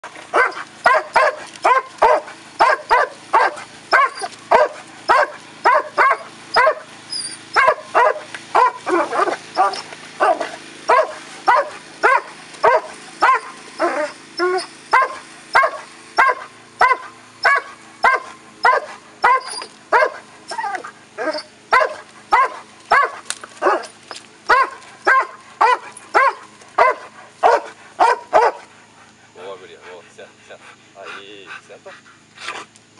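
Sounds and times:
dog barking: 0.3 - 6.9, 7.5 - 14.2, 14.9 - 23.9, 24.5 - 28.7.

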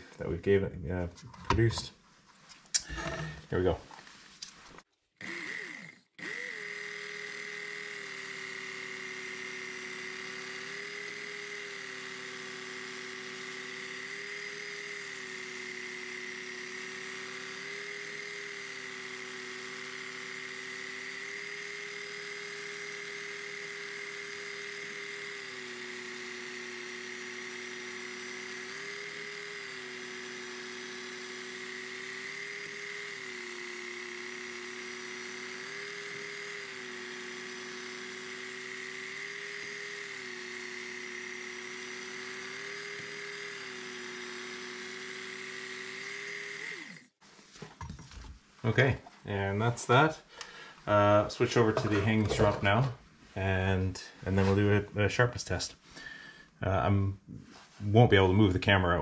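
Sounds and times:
belt sharpener motor hum: 5.2 - 47.2, 51.6 - 52.7.

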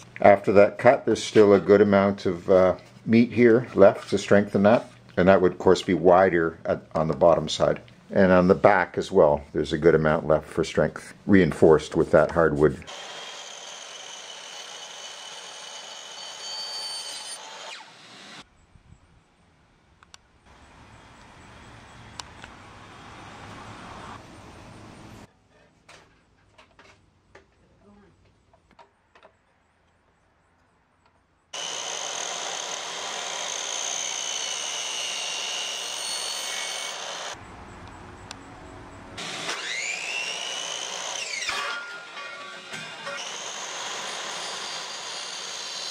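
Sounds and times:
saw cutting through metal: 12.8 - 18.4, 31.6 - 37.4, 39.2 - 45.9.

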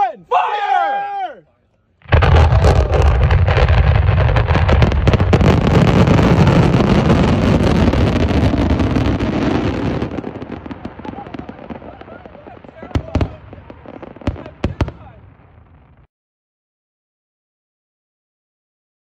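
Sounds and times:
fireworks launching and crackling: 2.0 - 16.1
deep rumble: 2.1 - 9.0.

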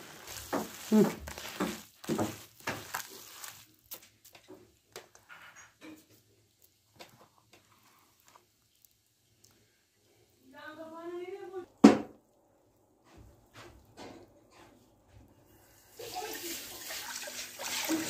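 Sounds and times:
hands squishing wet filling: 0.0 - 5.3, 6.1 - 10.1.

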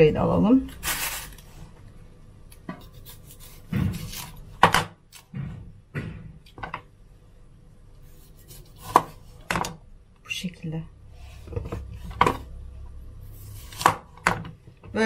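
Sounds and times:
knife cutting on plastic board: 2.7 - 5.3, 8.1 - 9.7, 13.4 - 14.3.

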